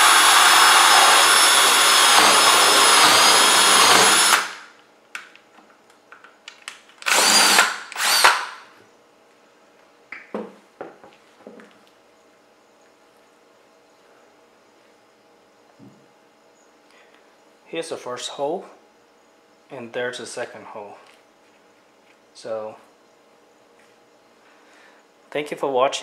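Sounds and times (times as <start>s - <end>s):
drill boring through metal: 0.0s - 4.7s, 7.0s - 8.6s
drill revving: 0.0s - 4.7s, 7.0s - 8.7s.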